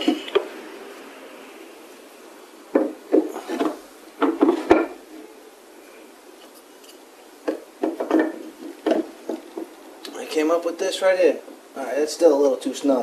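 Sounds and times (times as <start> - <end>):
wooden pieces knocking together: 2.8 - 5.0, 7.4 - 9.8.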